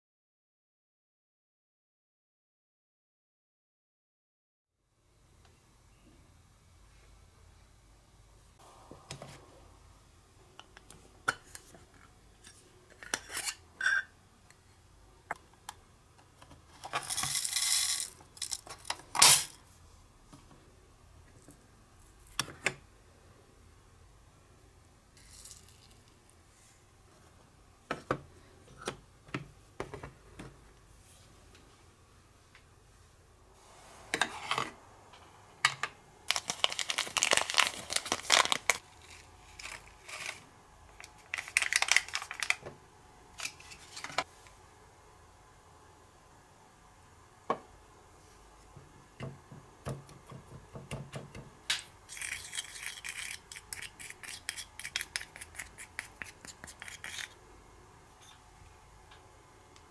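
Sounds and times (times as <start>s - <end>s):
paper packet crinkling and tearing: 36.3s - 42.6s.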